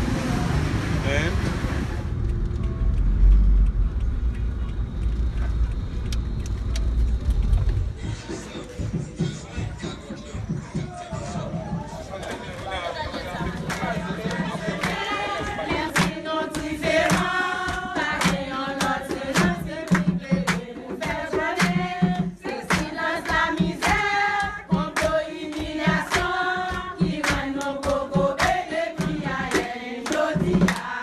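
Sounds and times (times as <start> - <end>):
hand clapping in time: 13.4 - 31.0
women singing in unison: 14.3 - 31.0.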